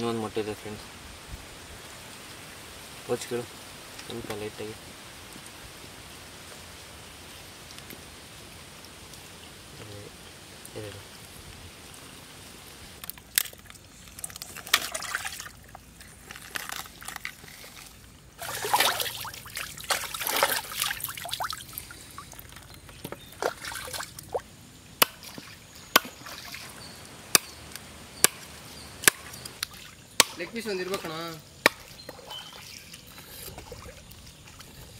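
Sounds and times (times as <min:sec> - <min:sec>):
water splashing and trickling: 0:02.0 - 0:34.9
knife chopping on wooden block: 0:28.2 - 0:29.4.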